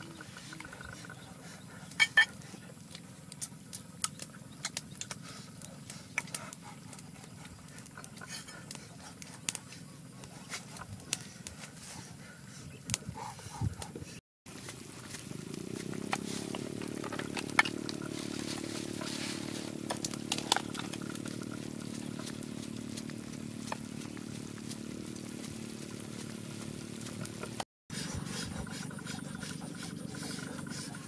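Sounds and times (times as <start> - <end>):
wood fire crackling: 14.5 - 27.6
steady low rumble: 14.8 - 27.6.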